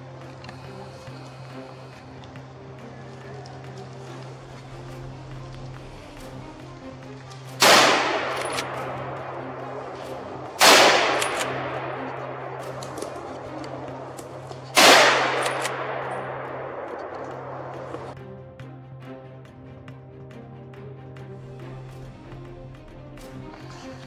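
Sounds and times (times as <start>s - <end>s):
rifle shots echoing: 7.6s - 18.1s.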